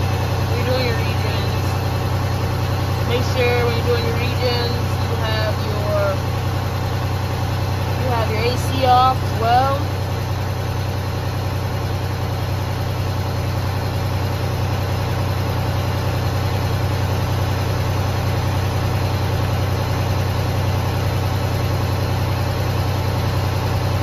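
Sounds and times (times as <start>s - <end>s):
diesel truck engine idling: 0.0s - 24.0s.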